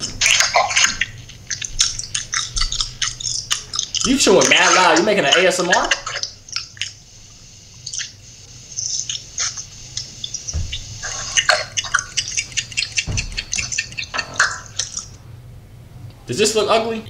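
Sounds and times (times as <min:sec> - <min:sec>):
person chewing and lip-smacking: 0:00.0 - 0:05.0, 0:05.7 - 0:07.0, 0:08.8 - 0:15.2.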